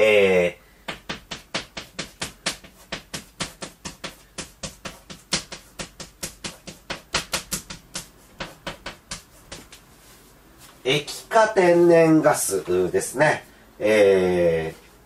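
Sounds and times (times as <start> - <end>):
chalk scratching on blackboard: 1.5 - 10.4.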